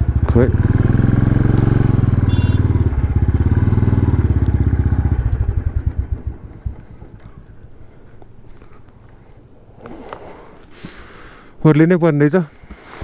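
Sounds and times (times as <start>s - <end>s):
motorcycle engine running: 0.0s - 7.8s.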